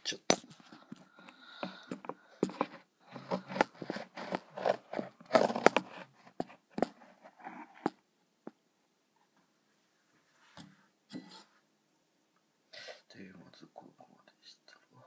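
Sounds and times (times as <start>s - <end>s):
camera handling knocks and scrapes: 1.9s - 7.0s.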